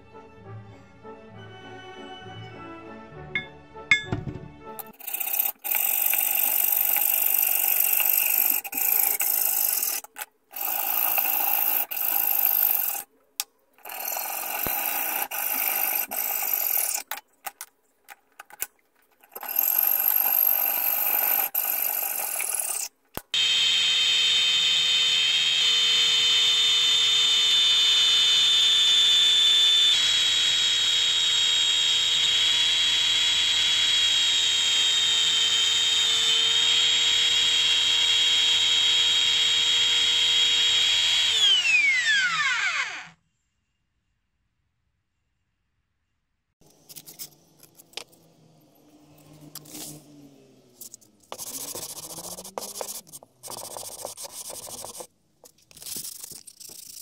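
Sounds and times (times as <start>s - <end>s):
belt sander whining: 19.3s - 43.2s, 46.6s - 57.0s.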